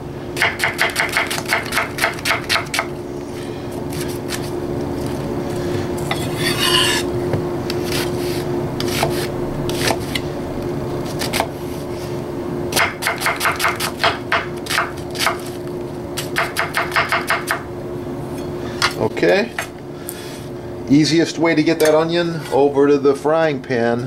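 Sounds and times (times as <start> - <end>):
knife chopping on wooden board: 0.4 - 2.9, 8.8 - 10.1, 12.8 - 15.5, 16.2 - 17.6
knife scraping board: 3.9 - 4.6, 6.0 - 7.1, 7.7 - 10.2.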